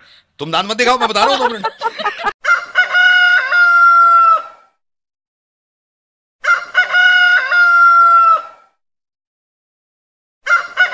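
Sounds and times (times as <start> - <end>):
rooster crowing: 2.4 - 4.7, 6.4 - 8.7, 10.4 - 10.9.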